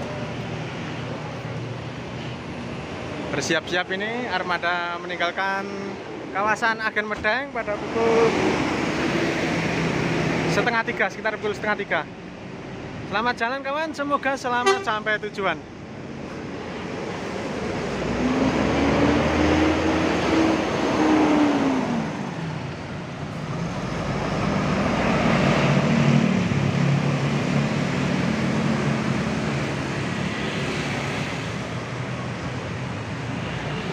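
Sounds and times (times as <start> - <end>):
street traffic: 0.0 - 33.9
bus diesel engine pulling away: 16.2 - 33.9.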